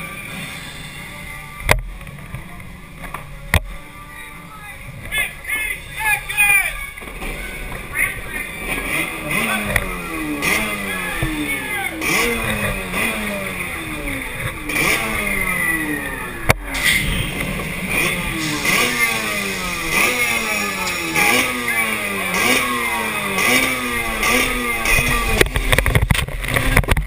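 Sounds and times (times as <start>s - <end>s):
jet ski engine revving: 6.8s - 27.0s.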